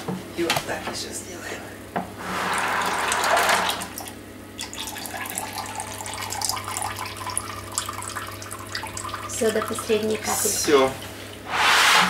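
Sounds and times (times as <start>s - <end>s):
liquid pouring: 2.5s - 11.5s
small splashes and drips: 3.9s - 11.4s.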